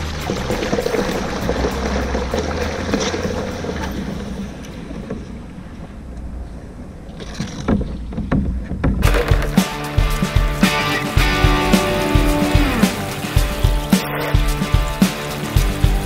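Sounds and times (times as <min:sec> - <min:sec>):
water: 0:00.0 - 0:10.6, 0:11.4 - 0:16.0
boat engine rumble: 0:00.0 - 0:16.0
sharp knocks: 0:07.6 - 0:15.2.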